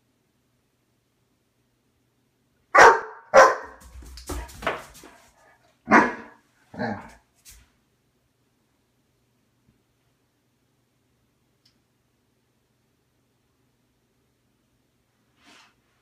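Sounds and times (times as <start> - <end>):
dog barking deeply: 2.8 - 3.8, 5.9 - 7.1.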